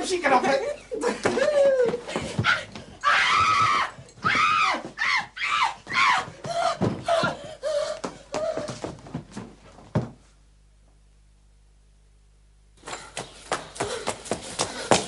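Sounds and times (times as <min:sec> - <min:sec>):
woman screaming: 0:01.5 - 0:07.4.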